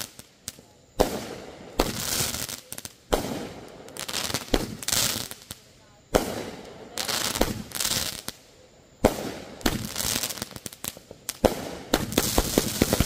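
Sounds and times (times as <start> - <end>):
crackling firework reports: 0.0 - 13.0
fireworks hissing: 0.0 - 13.0
firework shells bursting: 9.0 - 13.0.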